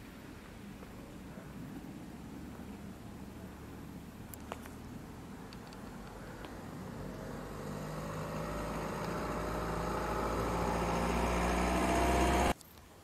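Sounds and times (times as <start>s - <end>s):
vehicle engine running: 2.2s - 12.6s.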